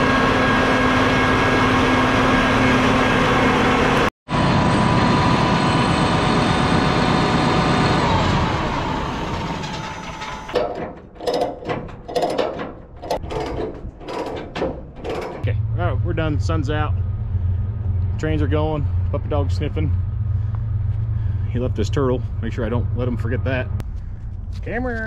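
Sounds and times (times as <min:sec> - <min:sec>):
large engine running: 0:00.0 - 0:25.0
mechanical rattling: 0:09.5 - 0:15.5.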